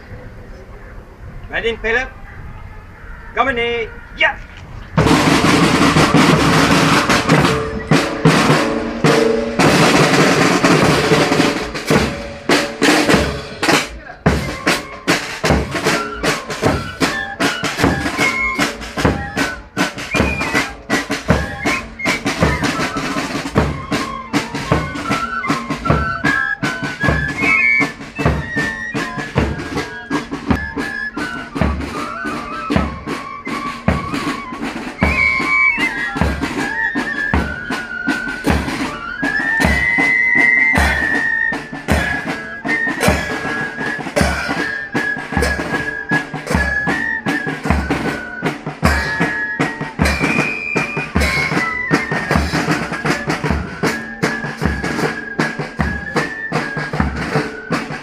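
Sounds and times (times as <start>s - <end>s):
high melody line: 5.0s - 58.0s
snare drum roll: 5.0s - 58.0s.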